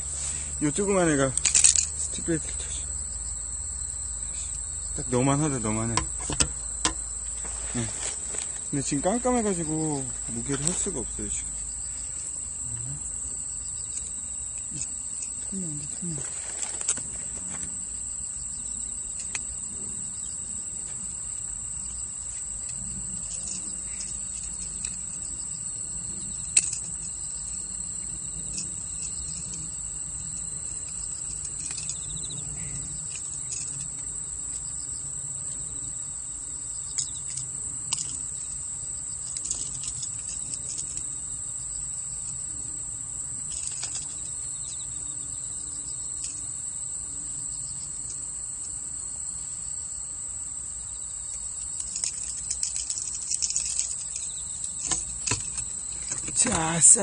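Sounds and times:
insects trilling: 0:00.0 - 0:57.0
small clicks and knocks: 0:39.2 - 0:41.1, 0:51.3 - 0:56.6.

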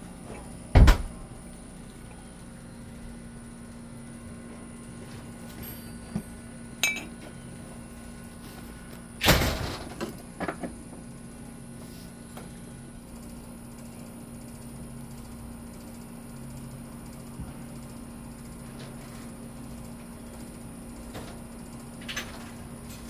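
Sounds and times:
steady low hum: 0:00.0 - 0:23.0
ringing clink: 0:05.6 - 0:07.1.

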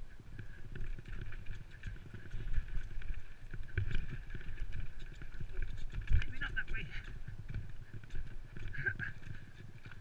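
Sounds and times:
bike rattling: 0:00.0 - 0:10.0.

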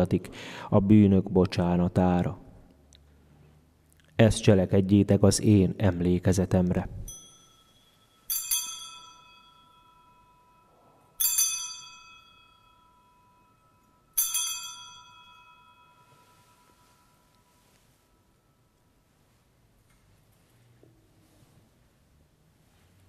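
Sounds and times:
altar bell ringing: 0:07.0 - 0:19.0.

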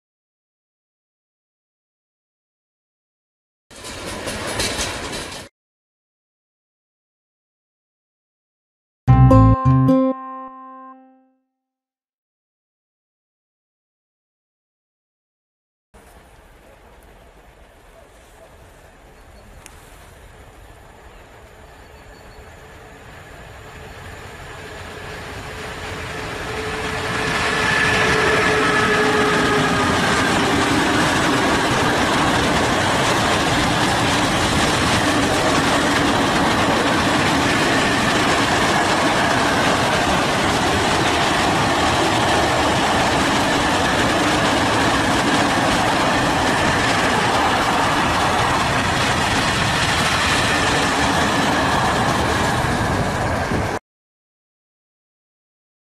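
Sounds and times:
train wheels on rails: 0:03.7 - 0:05.5, 0:16.0 - 0:53.8
falling locomotive tones: 0:09.1 - 0:11.3, 0:21.4 - 0:35.5
locomotive passing: 0:22.5 - 0:53.8.

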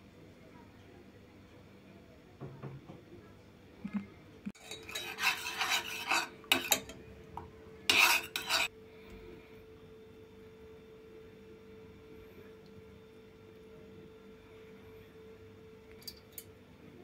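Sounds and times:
metal spoon scraping pot: 0:04.6 - 0:07.0, 0:07.9 - 0:08.7.

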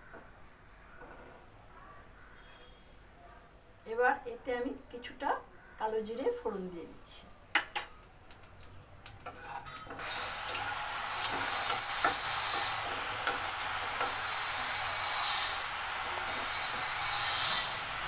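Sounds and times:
seeds sizzling in hot oil: 0:06.2 - 0:18.0.

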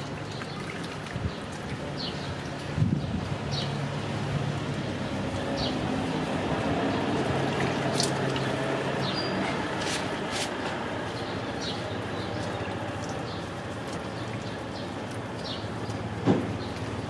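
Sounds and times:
water splashing in basin: 0:00.0 - 0:09.2.

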